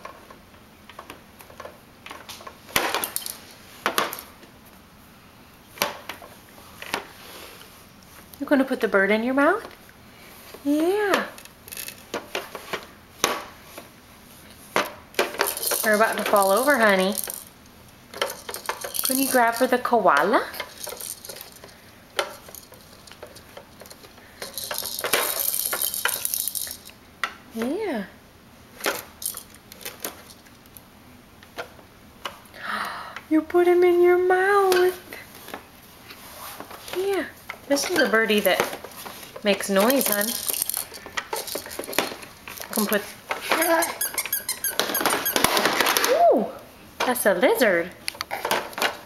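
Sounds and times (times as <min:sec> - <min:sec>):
plastic toys clicking and knocking: 0:11.1 - 0:13.5, 0:14.8 - 0:17.5, 0:18.1 - 0:27.4, 0:28.8 - 0:30.5, 0:37.0 - 0:46.2, 0:48.1 - 0:49.0.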